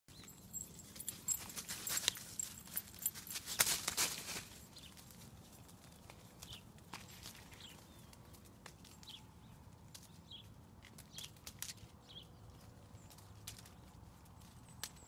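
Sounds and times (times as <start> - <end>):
footsteps crunching on leaves: 1.2 - 8.0.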